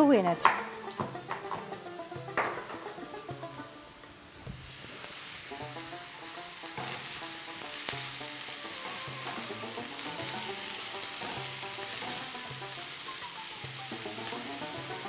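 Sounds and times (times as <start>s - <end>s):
vegetables sizzling in oil: 0.0s - 15.0s
soft background music: 5.6s - 15.0s.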